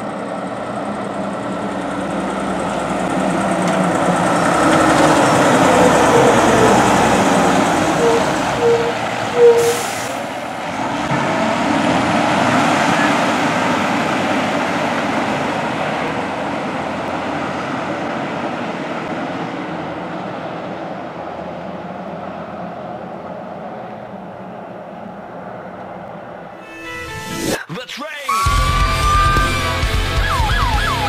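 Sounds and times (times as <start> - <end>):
truck engine pulling away: 0.0 - 26.6, 28.5 - 31.0
short horn toots: 7.9 - 10.2
burst of air hiss: 9.6 - 10.3.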